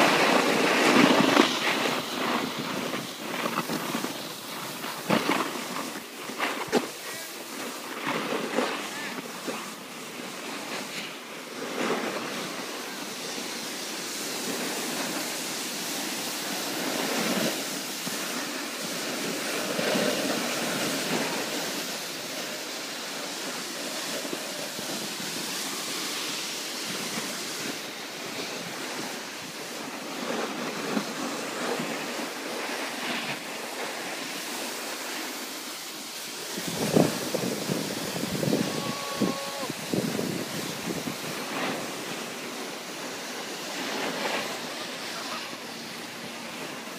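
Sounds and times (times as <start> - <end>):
snowboard sliding over snow: 0.0 - 46.9
wind rushing over microphone: 12.0 - 46.9.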